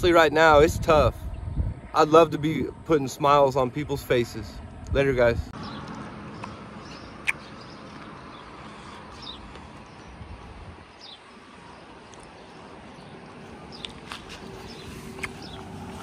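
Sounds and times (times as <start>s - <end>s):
bird chirps: 5.6s - 10.2s, 10.9s - 15.8s.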